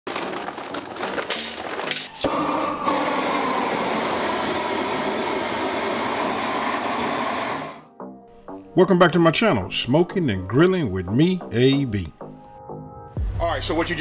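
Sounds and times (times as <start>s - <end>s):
charcoal clattering into metal: 0.1s - 2.2s
gas torch hissing: 2.2s - 7.8s.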